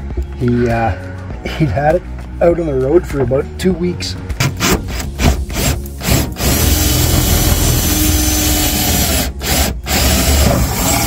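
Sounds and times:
drill bit cutting through wood: 0:04.9 - 0:11.0
cordless drill motor whine: 0:06.3 - 0:11.0.

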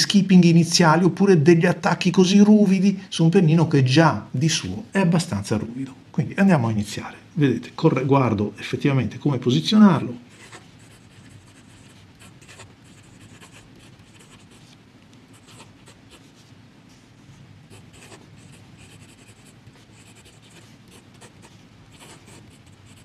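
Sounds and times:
pen nib scratching on paper: 0:10.3 - 0:14.8, 0:15.4 - 0:16.5, 0:17.7 - 0:23.0.

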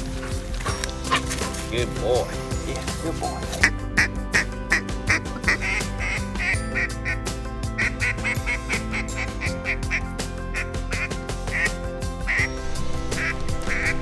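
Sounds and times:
background music with held tones: 0:00.0 - 0:14.0
ducks quacking: 0:03.6 - 0:07.2, 0:07.8 - 0:12.5, 0:13.2 - 0:14.0.

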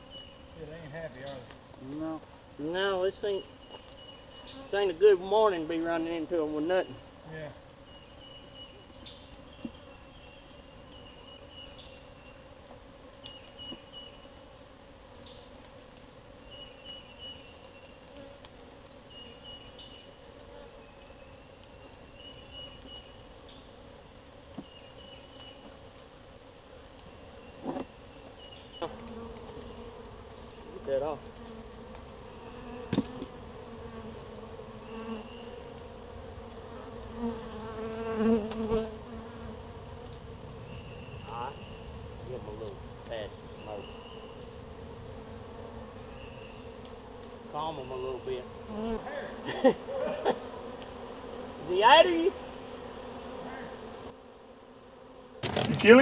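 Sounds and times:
honey bees buzzing: 0:00.0 - 0:56.0
sharp knocks: 0:55.4 - 0:56.0.

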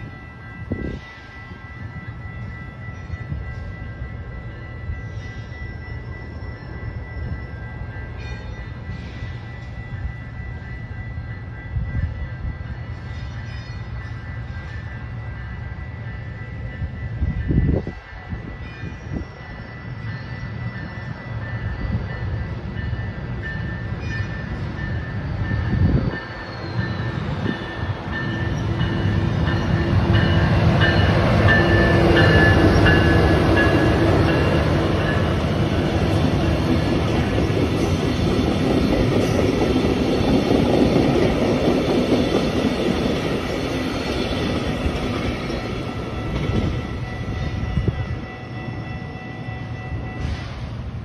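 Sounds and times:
locomotive engine passing: 0:20.6 - 0:51.0.

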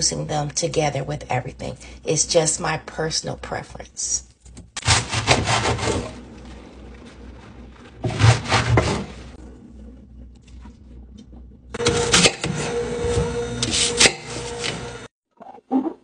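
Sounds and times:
knife cutting leaves and apples: 0:04.4 - 0:06.2, 0:13.1 - 0:15.0.

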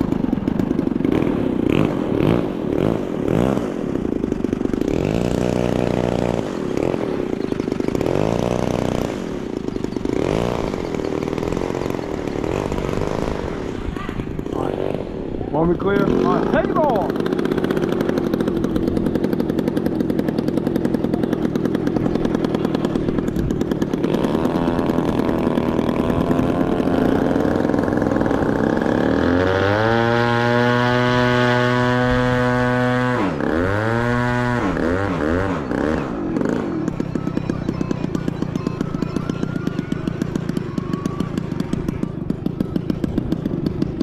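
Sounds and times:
model airplane engine revving: 0:00.0 - 0:44.0.

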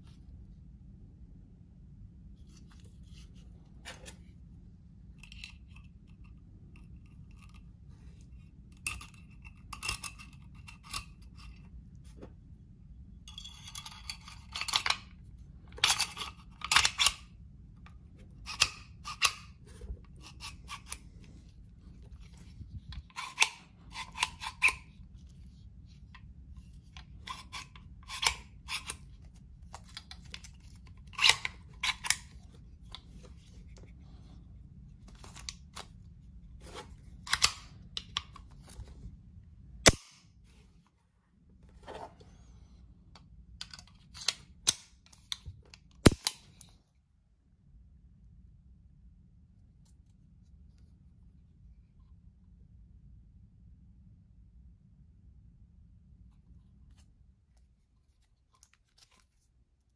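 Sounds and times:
metal pistol parts clicking: 0:13.3 - 0:17.4, 0:18.4 - 0:21.0, 0:22.1 - 0:25.0, 0:26.9 - 0:33.5, 0:37.2 - 0:38.8.

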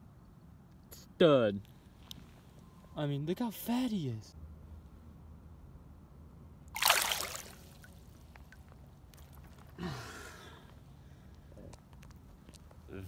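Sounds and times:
water splashing in shallow river: 0:06.7 - 0:09.4.

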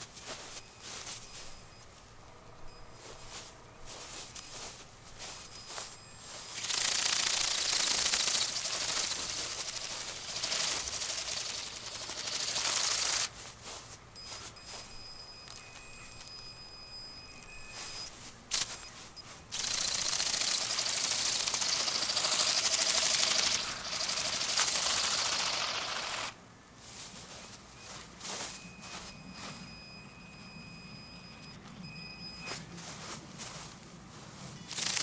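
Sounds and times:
robotic bird wings buzzing rattle: 0:02.7 - 0:13.8, 0:14.4 - 0:26.4, 0:34.6 - 0:35.0.

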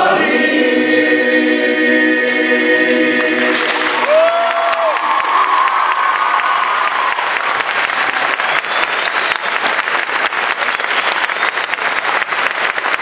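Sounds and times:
audience applauding: 0:03.2 - 0:13.0
held vocal note or cheer: 0:03.4 - 0:07.5.

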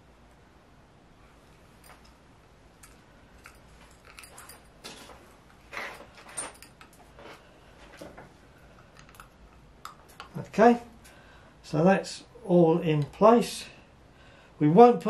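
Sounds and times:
hands handling small parts: 0:02.8 - 0:10.6.

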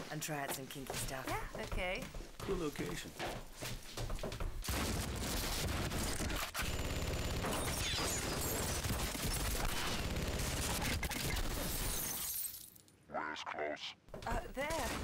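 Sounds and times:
rapid automatic gunfire: 0:04.7 - 0:11.7.

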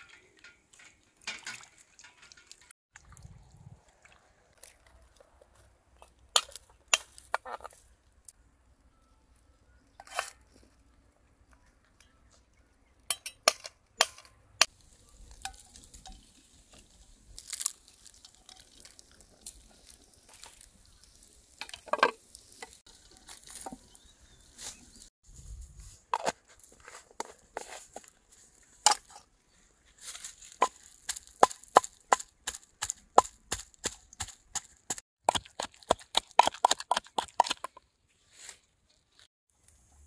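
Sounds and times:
utensils clinking on pans: 0:00.0 - 0:02.7.

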